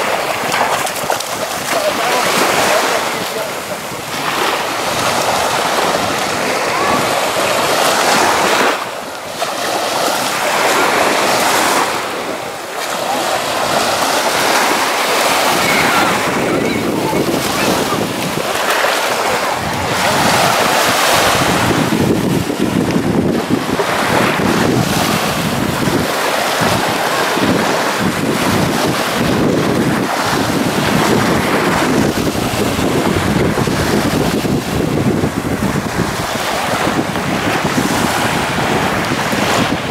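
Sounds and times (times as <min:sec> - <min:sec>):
small waves washing onto sand: 0:00.0 - 0:39.9
wind buffeting microphone: 0:00.0 - 0:39.9.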